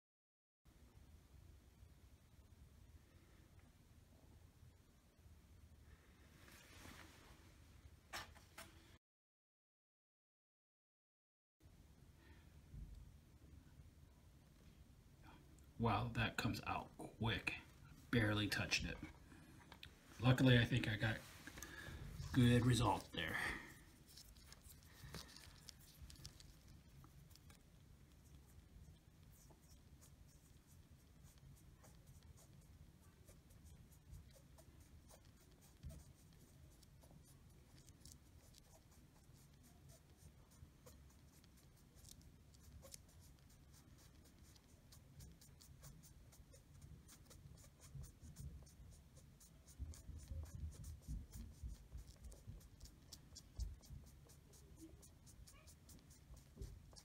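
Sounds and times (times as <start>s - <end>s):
foam swab scratchy rubbing: 20.7s - 57.0s.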